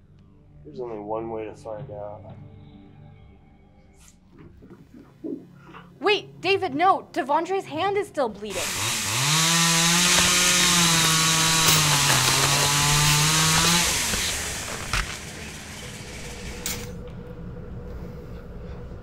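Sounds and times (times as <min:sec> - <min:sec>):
chainsaw running: 0:08.5 - 0:17.0.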